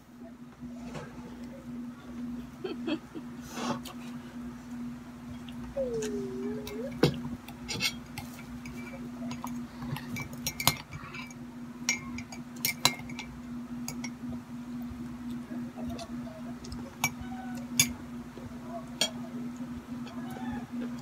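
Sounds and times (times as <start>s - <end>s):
steady low hum: 0.0s - 21.0s
cutlery clinking on crockery: 7.7s - 13.3s.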